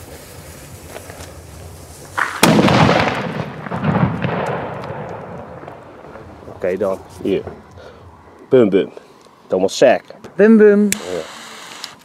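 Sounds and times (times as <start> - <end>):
firecracker bang: 2.1 - 7.9
rumbling echo: 2.2 - 8.4.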